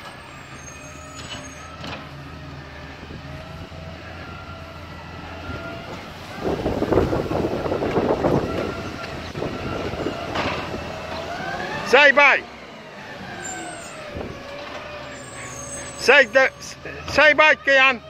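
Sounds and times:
garbage truck running: 0.0 - 18.0.

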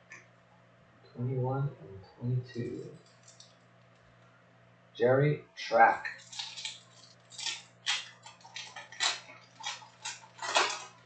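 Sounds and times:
foil wrapper crinkling and tearing: 6.1 - 11.0.

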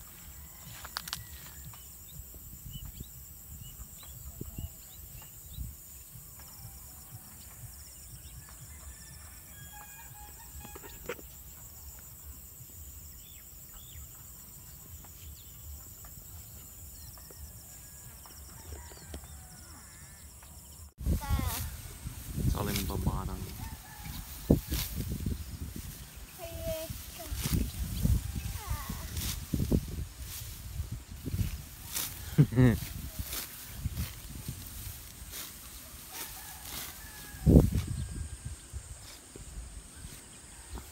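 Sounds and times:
high-pitched insect buzz: 8.9 - 17.6
low wind rumble: 21.0 - 36.1, 37.0 - 40.7.

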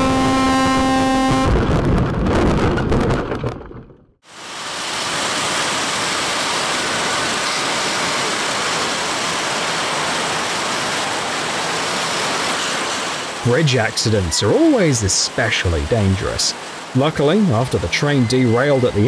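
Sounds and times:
freight train rolling over bridge: 4.8 - 19.0.

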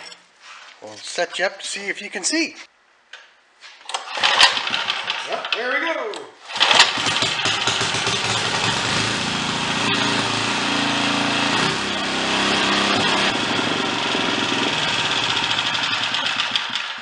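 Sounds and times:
small engine running steadily: 6.6 - 17.0.

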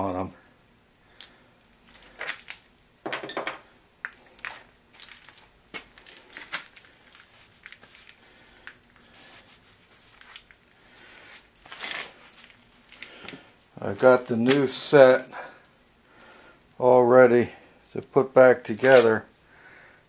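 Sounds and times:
small parts clicking and clinking: 1.2 - 2.6.

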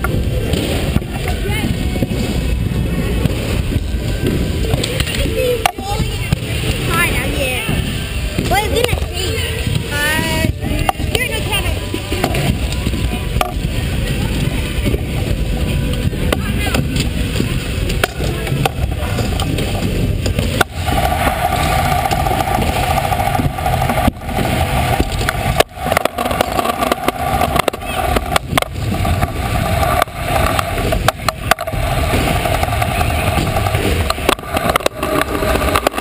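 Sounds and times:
scooter wheels rolling on concrete: 0.0 - 36.0
wheels knocking on joints: 0.0 - 36.0.

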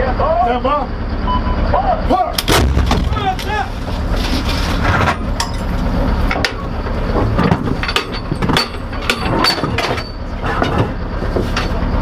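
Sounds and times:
steady low rumble: 2.4 - 9.1
metallic clanks and knocks: 6.3 - 11.8.

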